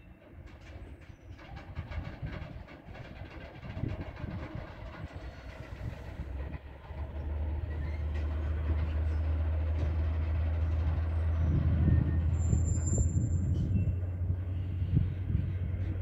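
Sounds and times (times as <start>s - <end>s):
freight train rumbling: 0.0s - 16.0s
thin high squeal: 11.9s - 14.1s.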